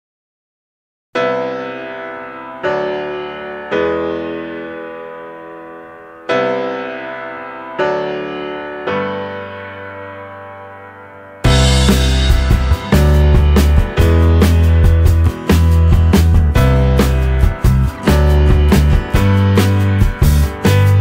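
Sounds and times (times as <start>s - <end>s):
slow piano chords: 1.2s - 21.0s.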